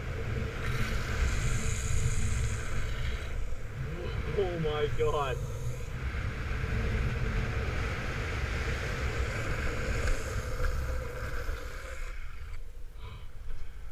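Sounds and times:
skateboard wheels on wet asphalt: 0:04.2 - 0:12.5.

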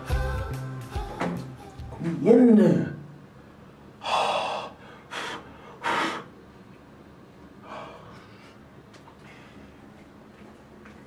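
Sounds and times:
man gasping: 0:04.0 - 0:06.3.

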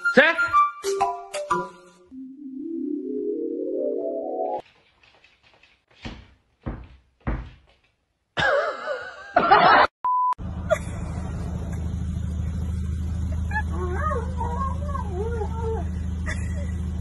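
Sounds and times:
dull thunks: 0:06.0 - 0:07.9
car engine idling: 0:10.4 - 0:17.0.

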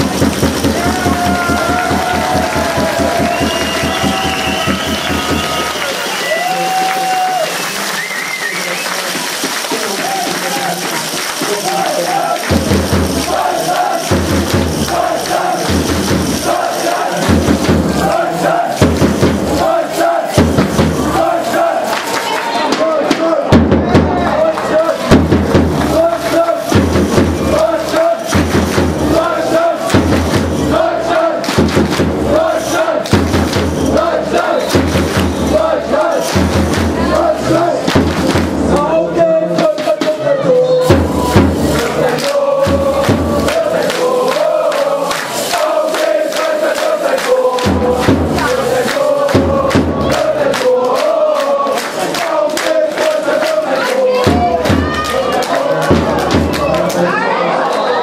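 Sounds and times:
spectators chanting: 0:00.0 - 0:58.0.

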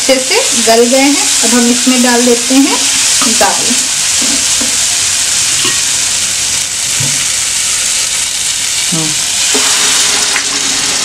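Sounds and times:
food sizzling in frying pan: 0:00.0 - 0:11.0.

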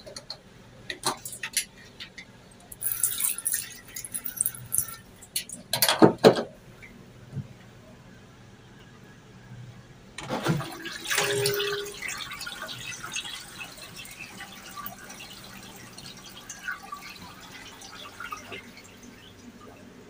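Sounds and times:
water dripping and trickling: 0:02.7 - 0:05.7, 0:11.1 - 0:19.8
toilet flushing rush of water: 0:10.2 - 0:19.6.

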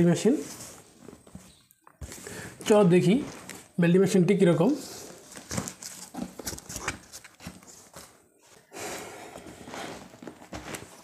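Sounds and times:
cardboard flaps rustling and knocking: 0:09.7 - 0:11.0.

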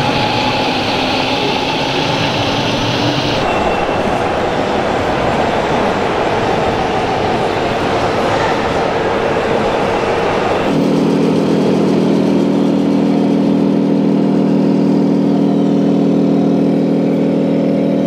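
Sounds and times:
diesel engine running through speaker: 0:00.0 - 0:03.5, 0:10.6 - 0:18.0
rushing noise: 0:00.0 - 0:18.0.

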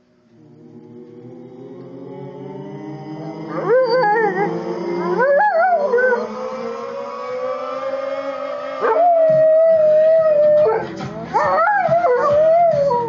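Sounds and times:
song playing: 0:00.0 - 0:13.0
dog howling: 0:03.2 - 0:13.0.

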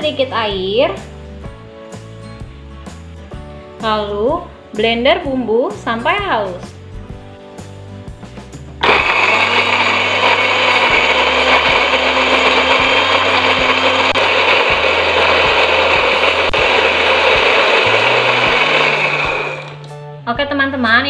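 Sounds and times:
electric blender running: 0:08.8 - 0:19.9.

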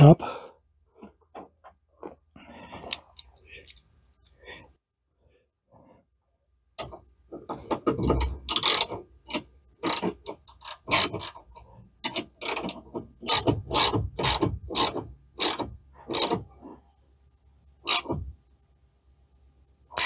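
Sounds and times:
ratchet wrench clicking: 0:08.2 - 0:11.4, 0:12.0 - 0:16.4, 0:17.8 - 0:18.1.

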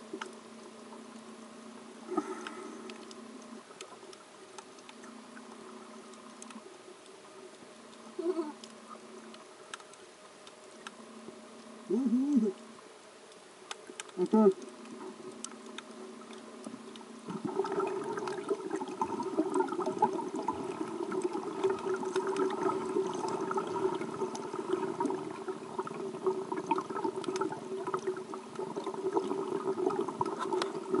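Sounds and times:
crackling clicks: 0:00.0 - 0:31.0
steady hum: 0:00.0 - 0:31.0
underwater water sloshing: 0:12.6 - 0:31.0.

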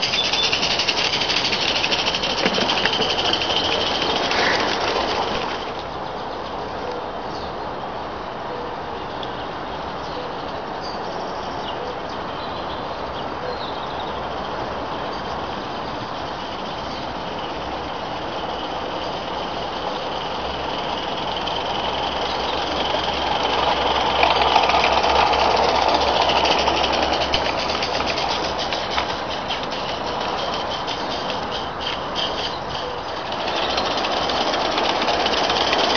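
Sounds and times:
steam locomotive exhaust beat: 0:00.0 - 0:06.1, 0:14.0 - 0:35.9
wheels clattering on rails: 0:00.0 - 0:08.1, 0:09.2 - 0:35.9.

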